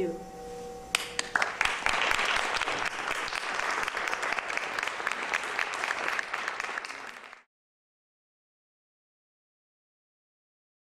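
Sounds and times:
audience applauding: 1.0s - 7.5s.

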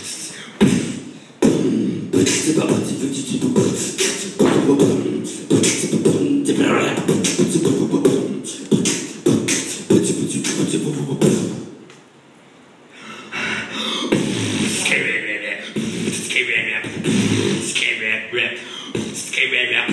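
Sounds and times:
rhythmic percussive stage performance: 0.0s - 11.6s.

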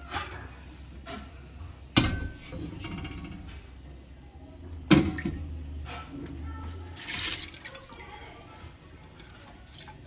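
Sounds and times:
pot clunking on metal grate: 1.9s - 3.6s.

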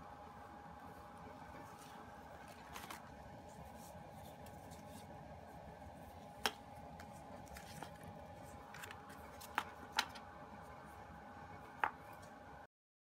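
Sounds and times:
faint steady hum: 0.0s - 12.7s
paper rustling: 1.5s - 5.1s, 6.0s - 10.2s.

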